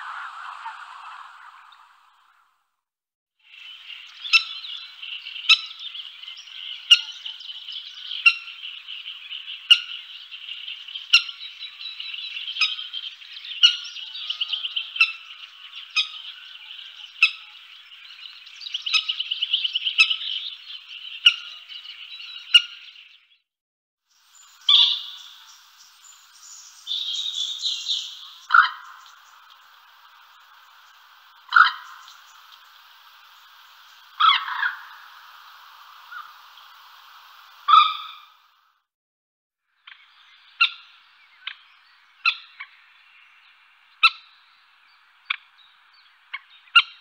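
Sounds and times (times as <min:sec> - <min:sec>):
high chirping bird chorus: 0:03.5 - 0:23.5, 0:24.1 - 0:38.5, 0:39.8 - 0:47.0
bird sharp call: 0:24.6 - 0:25.7, 0:31.4 - 0:32.6, 0:34.2 - 0:35.2, 0:37.6 - 0:38.4.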